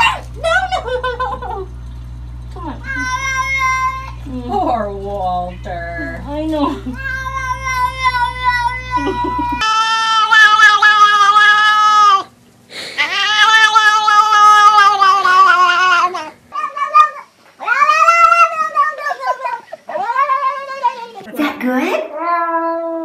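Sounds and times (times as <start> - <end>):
cats meowing: 2.8 - 4.2, 6.8 - 12.3, 13.0 - 21.3, 22.0 - 23.0.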